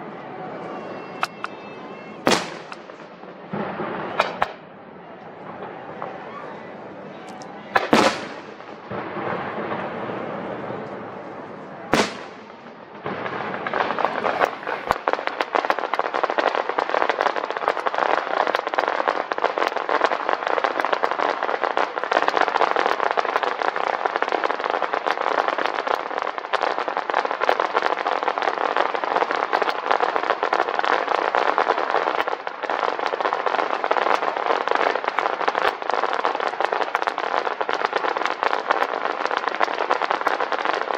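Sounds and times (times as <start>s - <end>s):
firework crackling: 0.0s - 40.9s
sharp firework bang: 1.0s - 4.8s, 7.8s - 11.1s, 11.8s - 15.6s.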